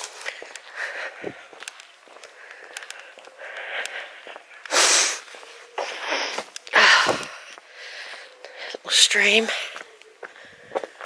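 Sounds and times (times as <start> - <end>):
person breathing out loudly: 2.4 - 8.8.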